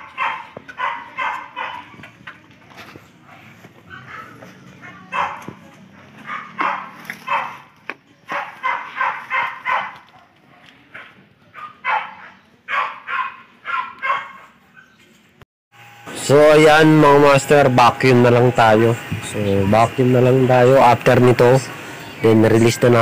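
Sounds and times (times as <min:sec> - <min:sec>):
dog barking: 0:00.0 - 0:02.1, 0:03.2 - 0:15.0.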